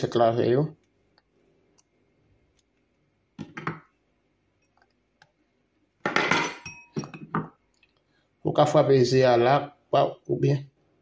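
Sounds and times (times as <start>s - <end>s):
glass ringing: 6.1s - 7.5s.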